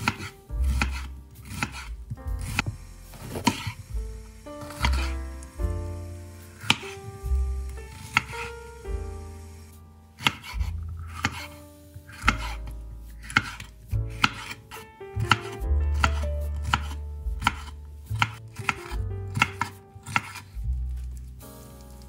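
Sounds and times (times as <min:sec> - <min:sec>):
knife chopping on cutting board: 0:00.0 - 0:03.8, 0:04.6 - 0:05.2, 0:06.6 - 0:07.1, 0:07.9 - 0:08.5, 0:10.2 - 0:20.6.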